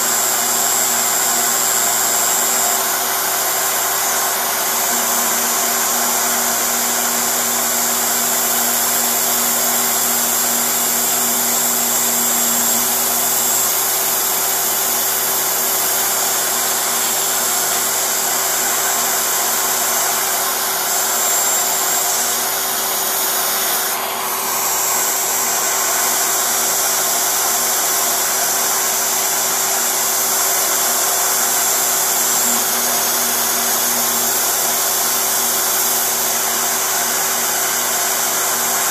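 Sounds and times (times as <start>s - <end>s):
vacuum hose rushing: 0.0s - 27.6s
router spindle whining: 0.0s - 38.9s.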